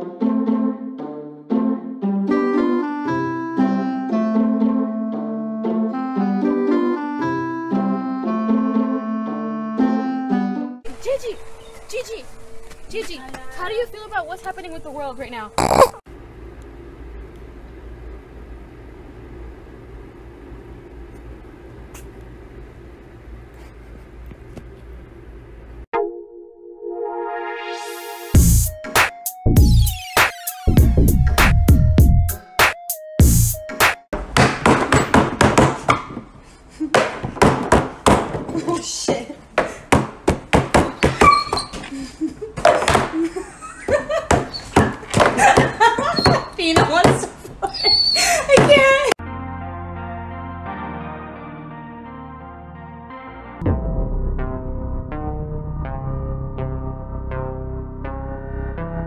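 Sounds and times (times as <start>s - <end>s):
puppy sneezing: 15.6s - 16.0s.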